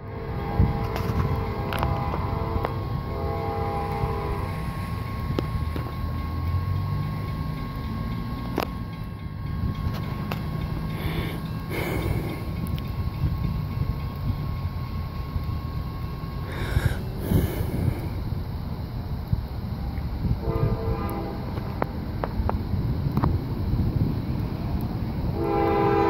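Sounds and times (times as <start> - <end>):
distant train horn chord: 0.0 - 13.2, 20.4 - 21.9, 25.2 - 26.0
train rumble: 0.0 - 26.0.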